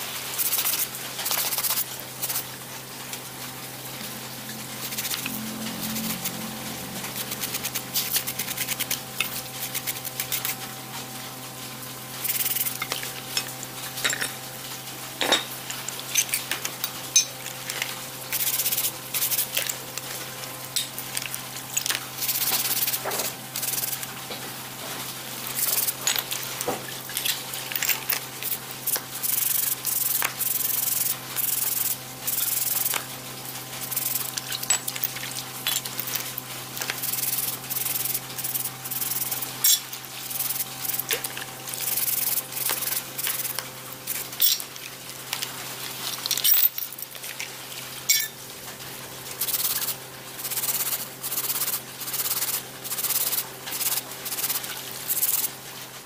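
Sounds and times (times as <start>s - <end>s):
brush scrubbing metal gears in water: 0.3s - 2.5s, 4.6s - 10.7s, 12.2s - 14.1s, 15.9s - 19.8s, 21.0s - 24.1s, 25.4s - 33.0s, 33.7s - 44.7s, 49.3s - 55.6s.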